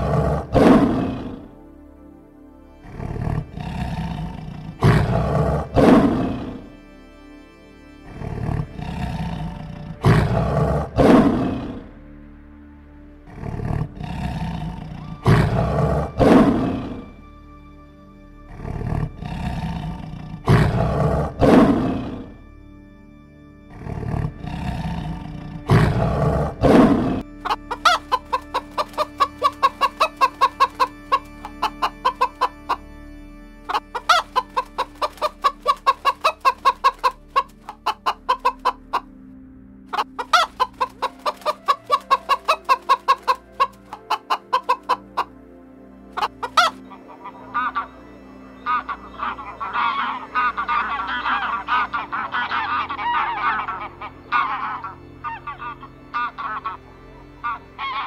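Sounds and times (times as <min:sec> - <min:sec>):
lion roaring: 0:00.0 - 0:01.5, 0:02.8 - 0:06.6, 0:08.1 - 0:11.9, 0:13.3 - 0:17.0, 0:18.5 - 0:22.4, 0:23.7 - 0:27.2
hen clucking: 0:25.0 - 0:32.8, 0:33.7 - 0:39.1, 0:39.9 - 0:45.3, 0:46.2 - 0:58.0.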